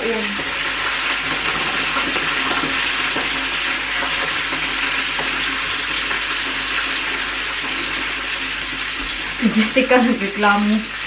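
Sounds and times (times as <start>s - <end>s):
food frying with sizzle: 0.0s - 11.0s.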